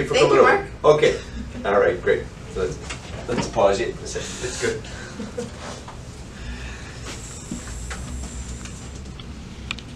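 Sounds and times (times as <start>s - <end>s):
steady low hum: 0.0s - 9.9s.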